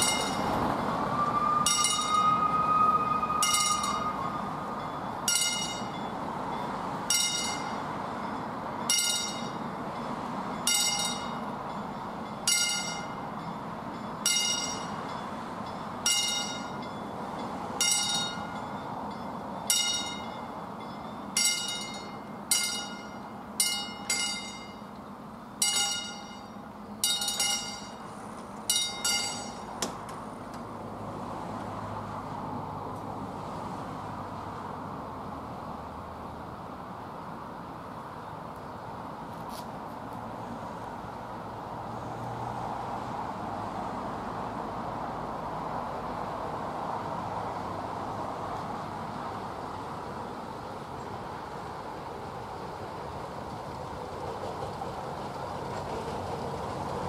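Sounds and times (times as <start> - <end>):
level-crossing warning bell: 0.0 - 29.8.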